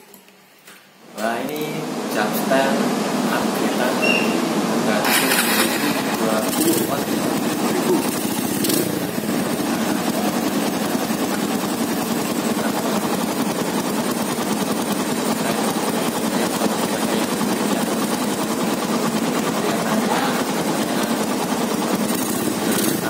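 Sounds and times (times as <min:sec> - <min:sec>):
motorcycle engine idling: 0:05.1 - 0:23.0.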